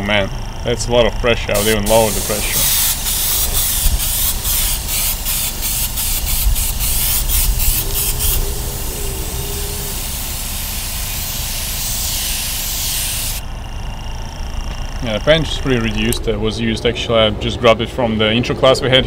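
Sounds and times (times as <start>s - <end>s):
low compressor rumble: 0.0s - 19.0s
airbrush air hiss: 1.6s - 13.5s.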